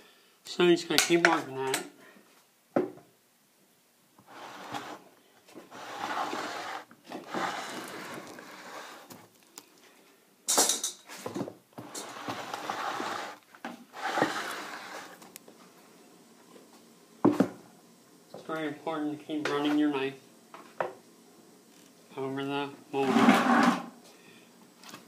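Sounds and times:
metal profile scraping wet plaster: 5.7s - 9.1s, 11.8s - 13.4s, 14.0s - 15.2s, 23.0s - 23.9s.

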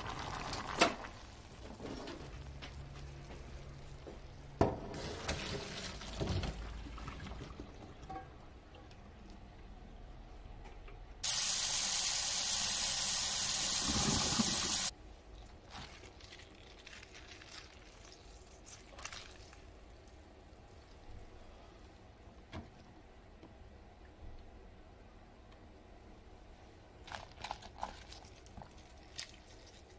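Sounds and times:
tap water running into colander: 11.2s - 14.9s.

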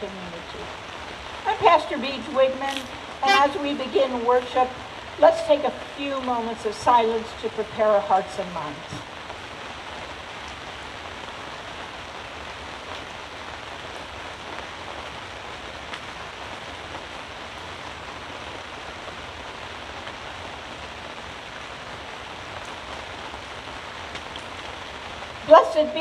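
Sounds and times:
rain on a fabric tent: 0.0s - 26.0s.

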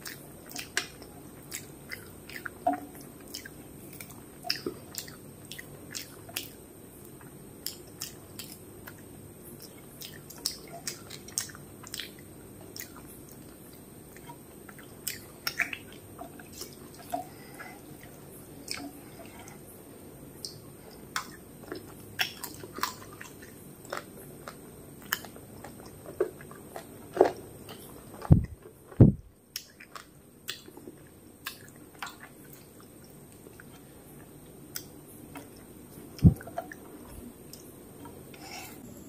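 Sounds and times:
wet chewing: 0.0s - 19.6s, 20.4s - 38.4s
low thumps: 28.3s - 29.2s.

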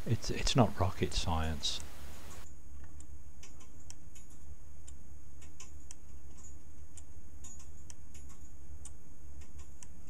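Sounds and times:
steady low hum: 0.0s - 10.0s.

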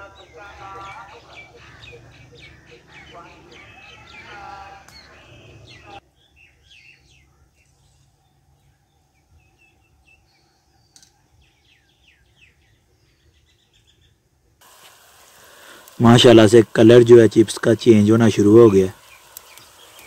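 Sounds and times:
small birds chirping: 0.0s - 20.0s.

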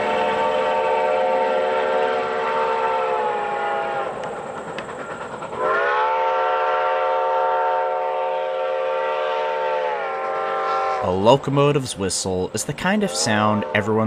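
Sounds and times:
steam hiss: 0.0s - 9.0s
steam locomotive chime whistle: 0.0s - 14.0s.

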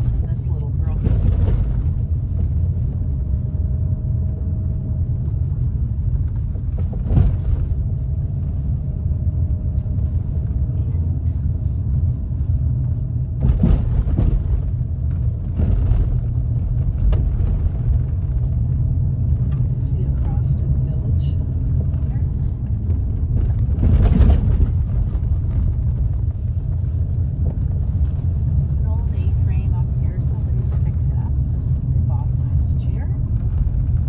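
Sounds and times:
car tyres and engine rumbling: 0.0s - 34.0s
car knocking over bumps: 13.3s - 20.6s, 21.6s - 26.4s.

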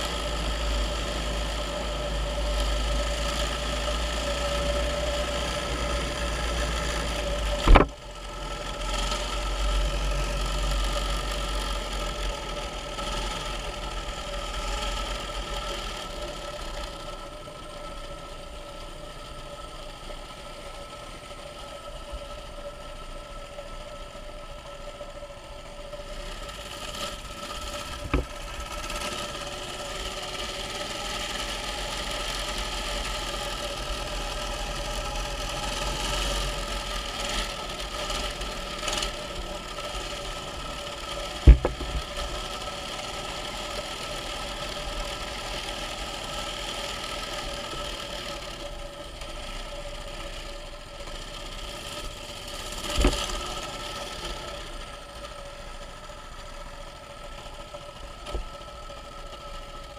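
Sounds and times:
small engine running: 0.0s - 59.9s
sharp knocks: 7.6s - 7.9s, 41.4s - 42.0s.

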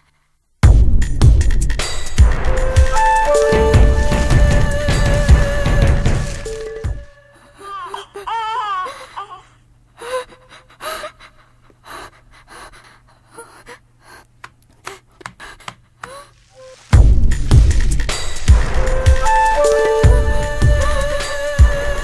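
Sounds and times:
background music: 0.7s - 7.6s, 16.6s - 22.0s.

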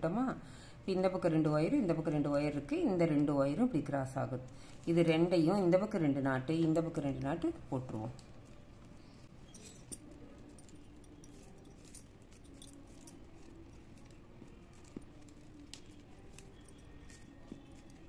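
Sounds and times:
plastic wire strands rustling: 7.9s - 18.0s.

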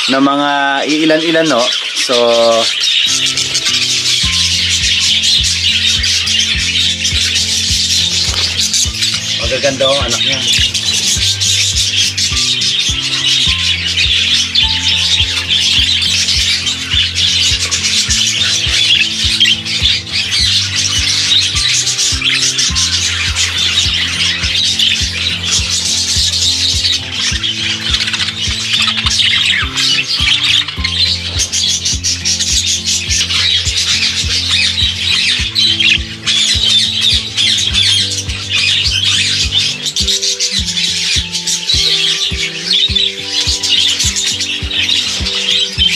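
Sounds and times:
background music with steady beat: 0.0s - 45.9s
budgerigars chattering and squawking: 0.0s - 45.9s.

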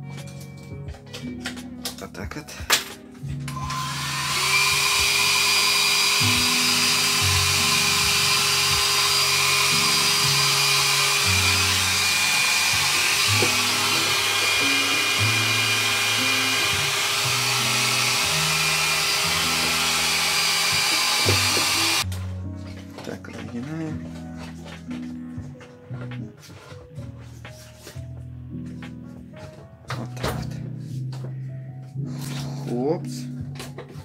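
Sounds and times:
background music with bass: 0.0s - 4.3s
heat gun running: 3.5s - 22.1s.

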